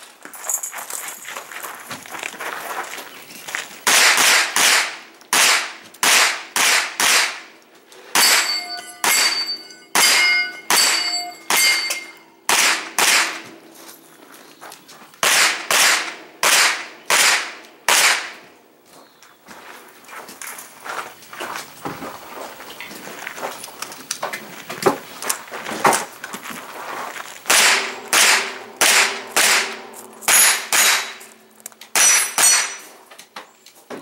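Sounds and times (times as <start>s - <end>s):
gunshots: 3.8s - 7.5s, 8.1s - 13.5s, 15.2s - 18.5s, 27.5s - 31.3s
bullets ringing on steel targets: 8.1s - 13.5s, 27.5s - 33.0s.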